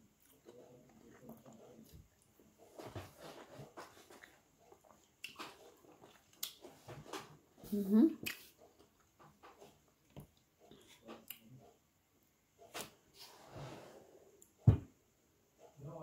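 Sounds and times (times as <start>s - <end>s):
low thump: 14.6s - 15.0s.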